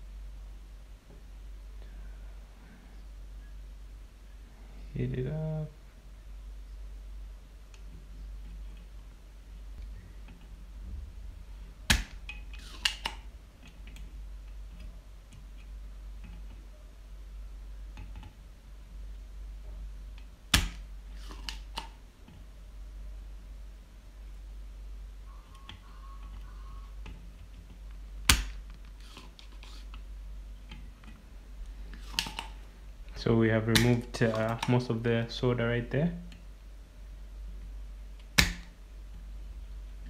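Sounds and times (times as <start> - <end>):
desoldering pump snapping: 11.9 - 16.6, 20.2 - 22.0, 27.0 - 30.0, 33.7 - 34.9, 38.2 - 38.7.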